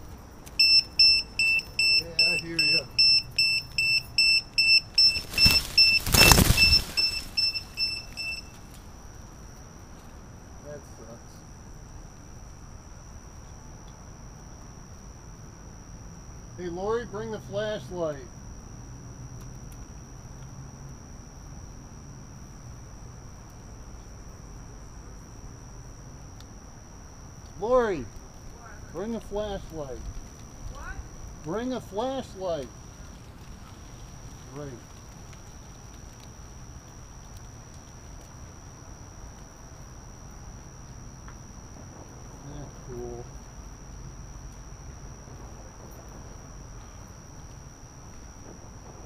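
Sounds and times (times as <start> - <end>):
crickets trilling: 0.0 - 49.0
faint low rumble: 0.0 - 49.0
electronic buzzer beeping: 0.6 - 8.6
rustling noise: 4.6 - 8.8, 32.7 - 38.4.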